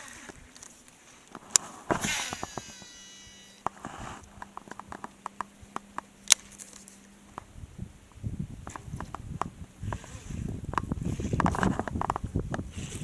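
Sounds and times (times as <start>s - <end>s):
low steady reel hum: 0.0s - 13.0s
fishing reel whirring: 2.0s - 3.6s.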